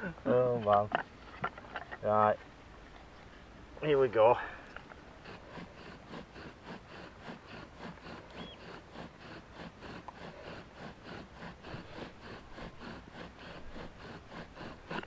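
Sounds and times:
bow drill sawing rhythmically: 3.8s - 15.0s.

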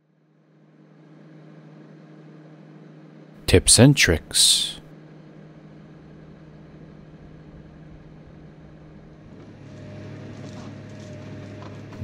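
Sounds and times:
heavy machine engine humming: 6.6s - 12.0s.

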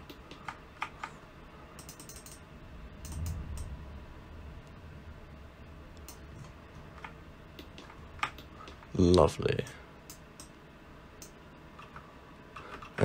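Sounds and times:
computer mouse clicking: 0.0s - 1.2s, 1.8s - 2.4s, 3.0s - 3.7s, 6.0s - 8.8s, 10.1s - 10.6s
mouse scroll wheel ticking: 1.8s - 2.4s
soft low rumble: 2.4s - 8.8s.

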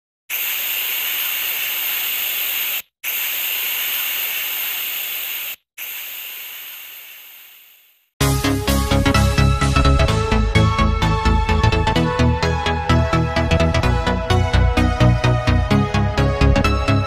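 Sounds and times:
hissing sound effect: 0.3s - 8.1s.

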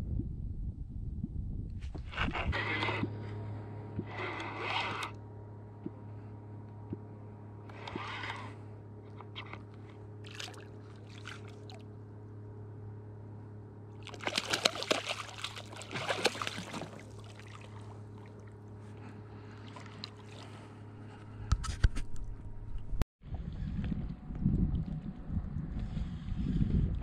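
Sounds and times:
steady low hum: 0.0s - 27.0s
wooden clonk splashing water: 14.0s - 17.8s.

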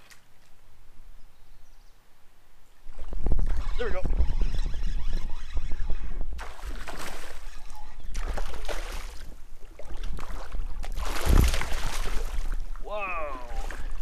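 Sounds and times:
wind buffeting microphone: 2.9s - 12.8s
fish splashing in water: 6.4s - 12.6s.

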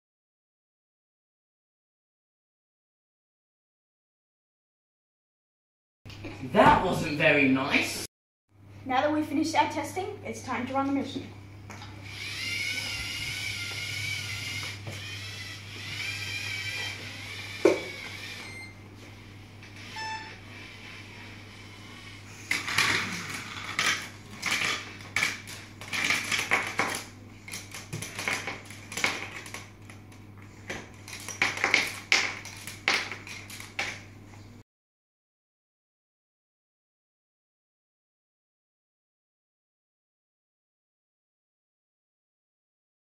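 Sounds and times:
small electric motors whining: 11.8s - 34.0s
short beeps: 19.9s - 20.4s.

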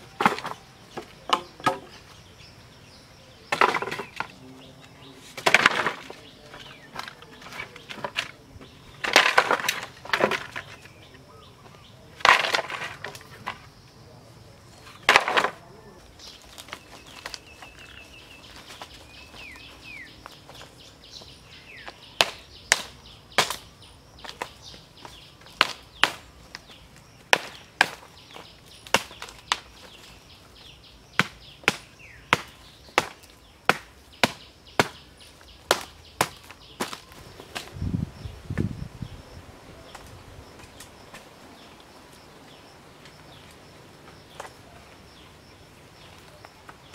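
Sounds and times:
bamboo halves knocking together: 0.0s - 2.0s, 3.5s - 4.4s, 5.3s - 11.0s, 12.2s - 13.7s, 14.8s - 15.6s, 21.8s - 30.1s, 31.1s - 37.8s.

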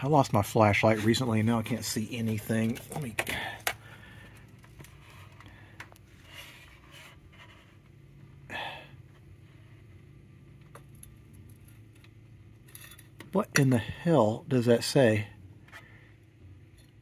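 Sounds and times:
steady low hum: 0.0s - 17.0s
person breathing: 3.3s - 6.4s, 8.5s - 9.0s.

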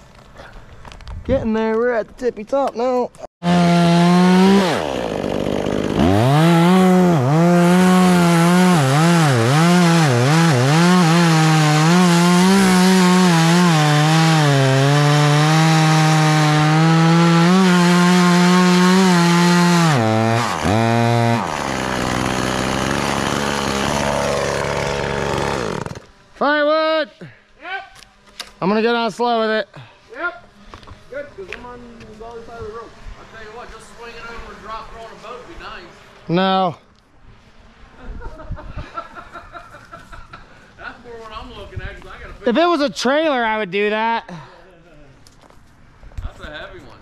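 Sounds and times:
chainsaw cutting wood: 3.4s - 26.2s.

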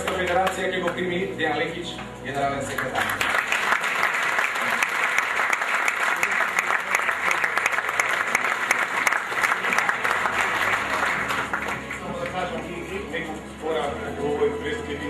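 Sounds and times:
audience applauding: 0.0s - 1.0s, 2.7s - 12.7s.

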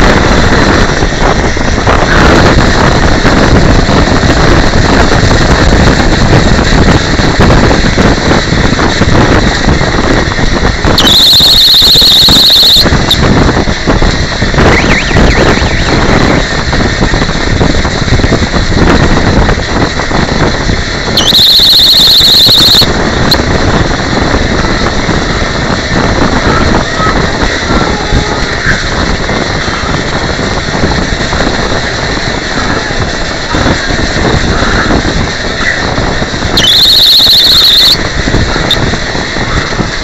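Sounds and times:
high squeals: 11.0s - 12.9s, 14.6s - 16.2s, 21.2s - 22.9s, 36.6s - 38.0s.

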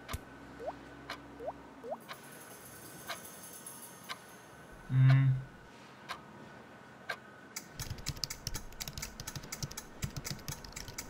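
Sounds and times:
fast irregular clicks: 7.6s - 11.0s.

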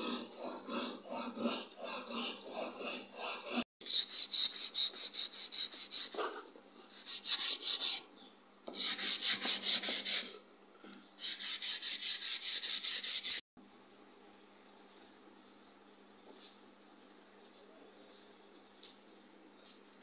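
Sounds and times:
hand file rasping on wood: 0.0s - 6.3s, 6.9s - 8.0s, 8.7s - 10.4s, 11.2s - 13.4s.

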